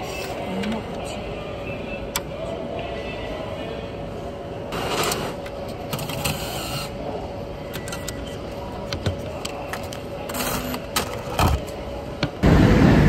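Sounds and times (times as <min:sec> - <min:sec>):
cash dispenser whirring: 0:04.7 - 0:07.0, 0:07.6 - 0:08.4, 0:09.0 - 0:11.8.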